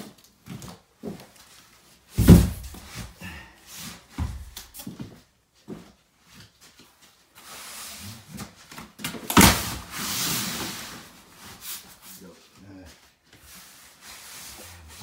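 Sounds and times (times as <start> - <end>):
cardboard box thump: 2.2 - 2.9.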